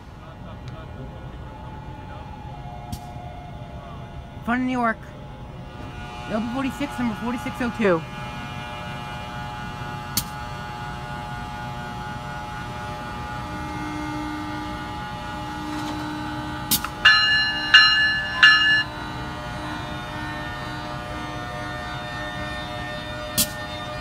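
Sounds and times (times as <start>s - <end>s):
locomotive electrical hum: 0.0s - 24.0s
bell ringing: 17.0s - 19.4s.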